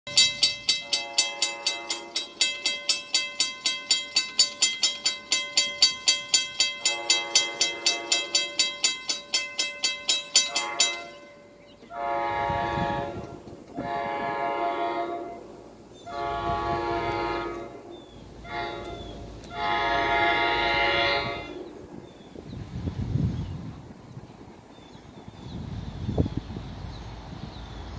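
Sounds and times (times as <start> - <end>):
train air horn blasts: 0.1 - 2.4, 6.8 - 8.9, 10.3 - 21.8
bell ringing rapidly: 0.1 - 11.4.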